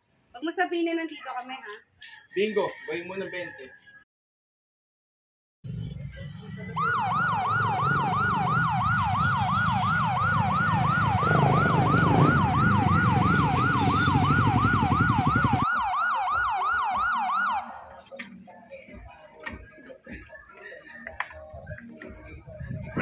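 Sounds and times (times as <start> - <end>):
motorcycle engines: 5.7 - 15.7
siren yelping: 6.8 - 17.8.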